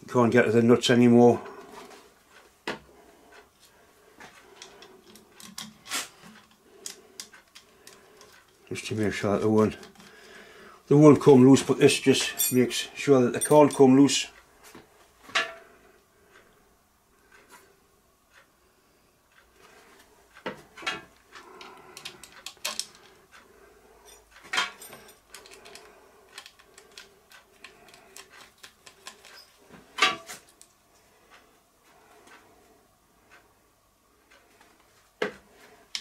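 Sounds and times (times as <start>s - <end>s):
faint steady hum: 0.0s - 36.0s
steel bolts and tools clinking: 12.2s - 14.0s, 24.0s - 27.0s.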